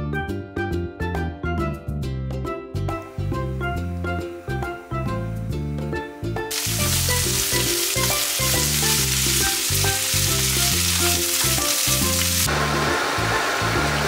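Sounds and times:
vegetables sizzling in oil: 0:06.5 - 0:14.0.

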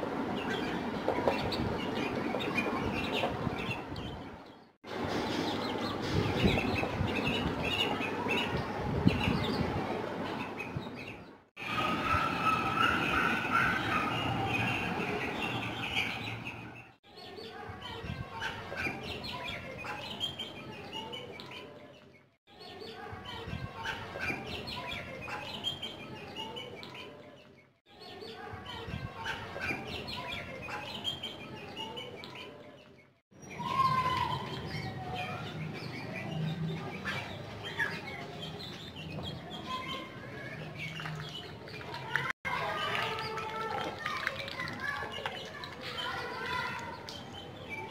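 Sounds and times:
chicks and ducklings peeping: 0:00.4 - 0:04.3, 0:33.6 - 0:42.2.

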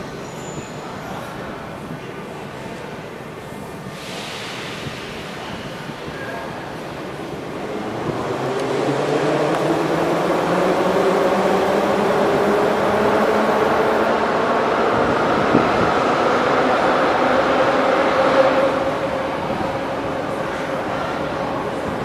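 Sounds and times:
metro train rumbling: 0:00.0 - 0:22.0
train whining tones: 0:07.1 - 0:20.6.

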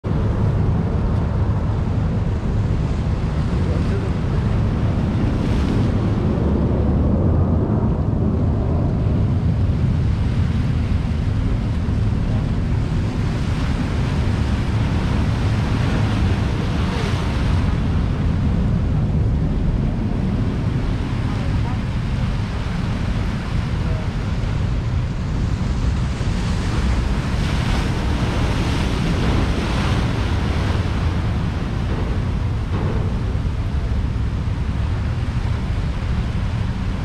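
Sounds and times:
wind rumble on microphone: 0:00.0 - 0:37.0
waves splashing against rocks: 0:09.7 - 0:37.0.

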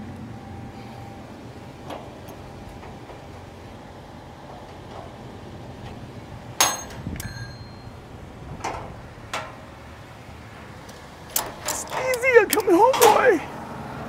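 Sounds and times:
truck engine idling: 0:00.0 - 0:14.0
metal clanks: 0:01.8 - 0:09.8, 0:10.9 - 0:13.5.

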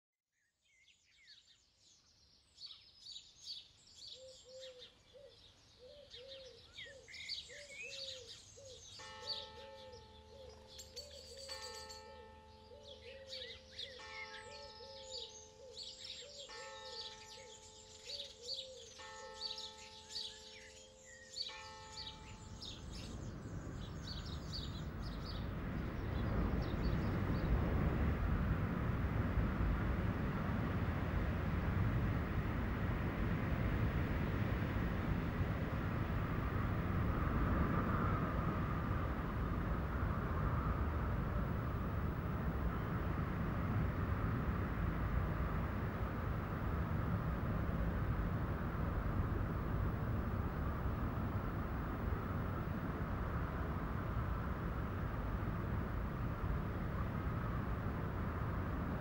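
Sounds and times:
soft sustained chords: 0:19.2 - 0:59.0
rising whoosh of noise: 0:22.5 - 0:59.0.

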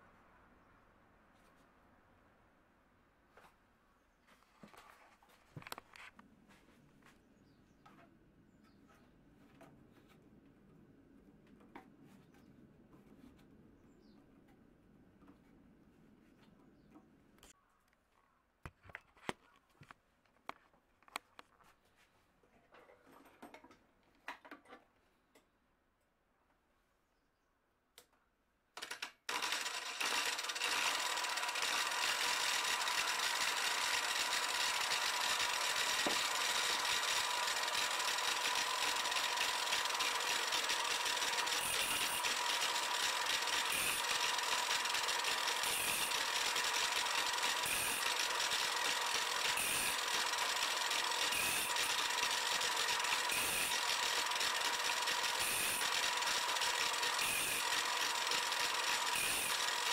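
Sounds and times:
angle grinder whining: 0:29.3 - 0:59.9.

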